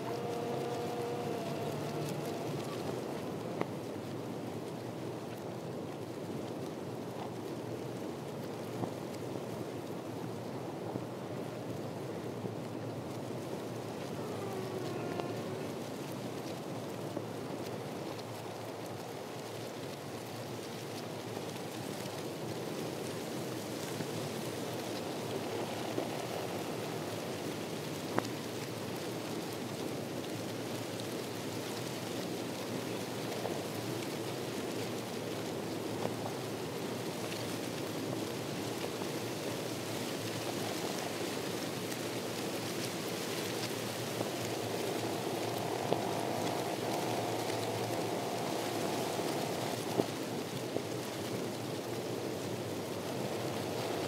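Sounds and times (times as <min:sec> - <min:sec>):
faint ticks: 0:00.0 - 0:03.8, 0:13.9 - 0:16.7
rushing water hiss: 0:00.0 - 0:54.0.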